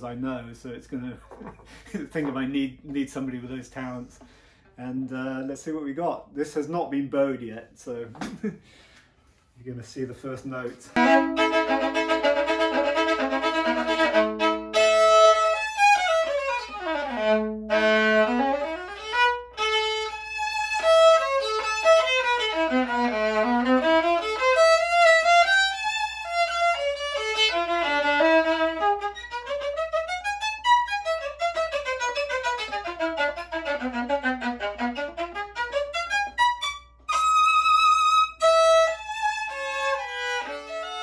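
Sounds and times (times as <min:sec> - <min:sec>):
bowed violin chords and runs: 0:11.0 - 0:41.0.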